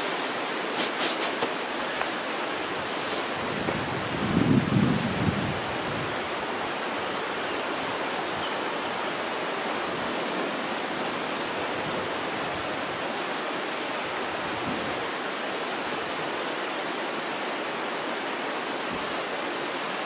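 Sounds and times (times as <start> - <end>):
faint rustle: 0.0 - 6.0, 13.6 - 20.0
steady rushing noise: 0.0 - 20.0.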